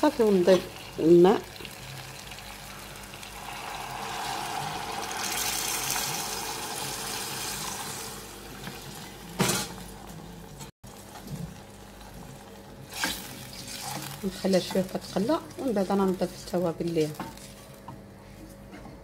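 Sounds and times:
water pouring into sizzling pan: 0.8s - 9.3s.

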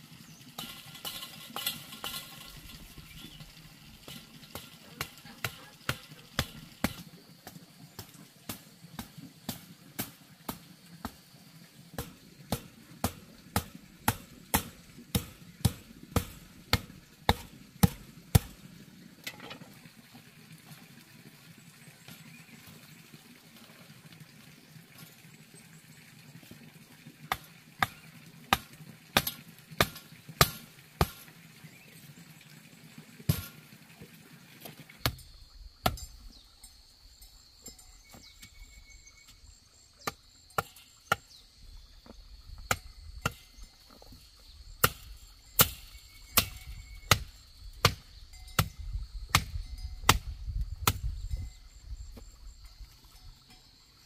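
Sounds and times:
digging tool striking stony soil: 0.6s - 3.4s, 4.0s - 11.3s, 12.0s - 19.7s, 27.3s - 31.3s, 33.3s - 33.7s, 34.6s - 36.4s, 40.0s - 41.4s, 42.0s - 51.3s.

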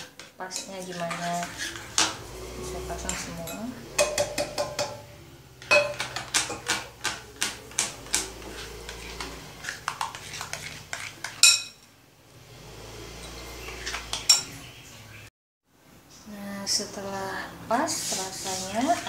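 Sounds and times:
spoon stirring batter in glass bowl: 0.0s - 12.0s, 13.2s - 14.6s, 17.9s - 19.0s
spoon clinking against bowl: 3.1s - 5.0s, 5.6s - 8.2s, 11.2s - 11.9s.

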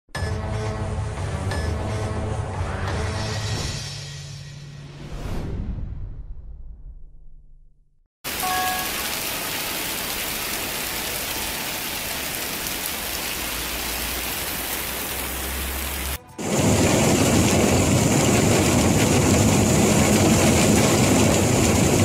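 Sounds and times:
torrential rain and hail: 8.3s - 22.0s.

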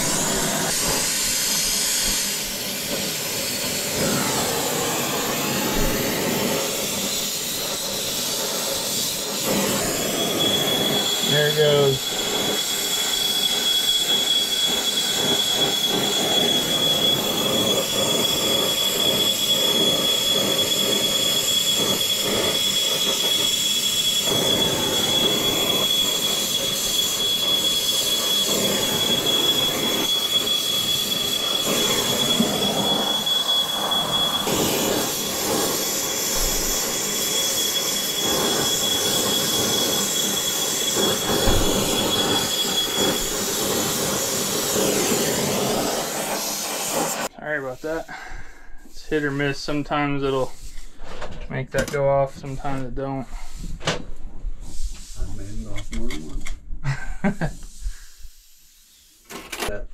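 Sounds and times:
torch flame hissing: 0.0s - 51.0s, 57.2s - 59.3s
smoke alarm tone: 0.1s - 47.3s.

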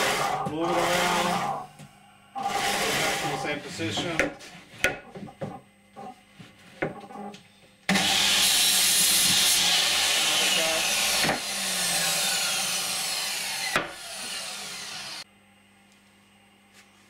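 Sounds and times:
chop saw motor starting: 7.9s - 15.2s.

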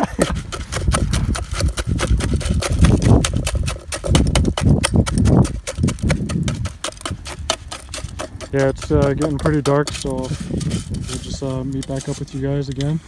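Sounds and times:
paste scraped in metal pan: 5.5s - 13.0s.

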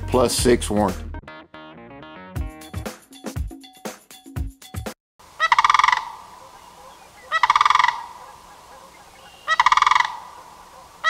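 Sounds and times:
crane rattling calls: 5.3s - 11.0s.

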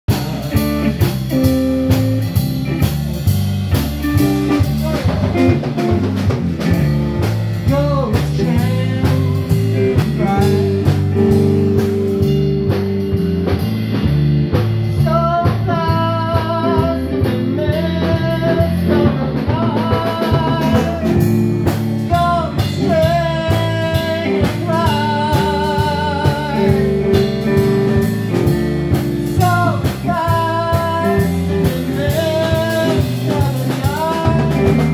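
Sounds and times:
bass guitar: 0.0s - 34.9s
drum kit beat: 0.0s - 34.9s
electric guitar: 0.0s - 34.9s
man singing: 4.1s - 6.9s, 7.5s - 12.8s, 14.8s - 21.4s, 22.0s - 28.5s, 29.2s - 34.9s.

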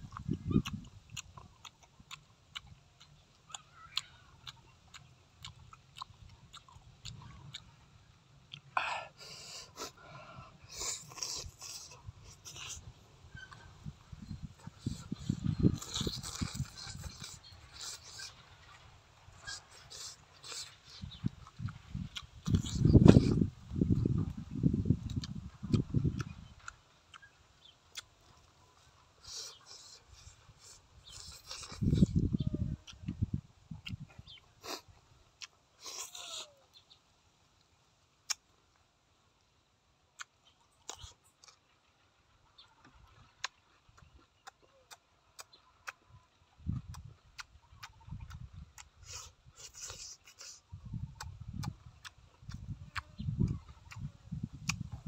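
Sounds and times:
person chewing: 0.0s - 7.8s, 8.4s - 36.7s, 37.6s - 38.8s, 40.2s - 41.8s, 42.8s - 46.0s, 46.8s - 55.0s.

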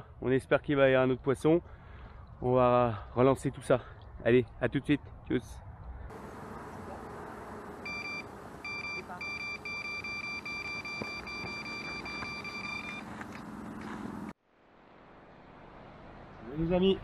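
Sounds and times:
electronic alarm beeping rapidly: 7.8s - 13.2s.

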